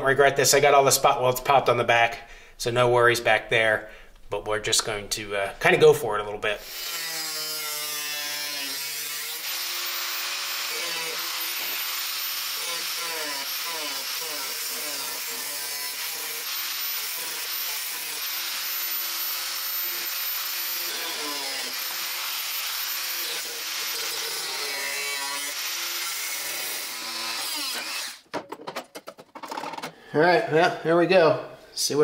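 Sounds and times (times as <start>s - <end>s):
angle grinder cutting steel: 6.6s - 28.3s.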